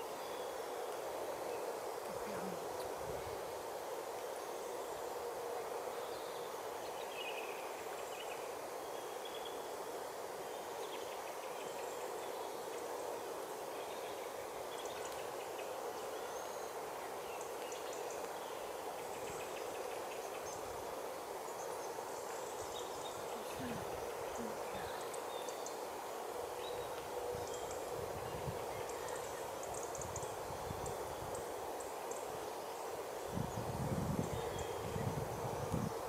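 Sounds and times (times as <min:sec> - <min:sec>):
outdoor background noise: 0:00.0 - 0:36.0
faint high chirps and ticks: 0:10.4 - 0:33.0.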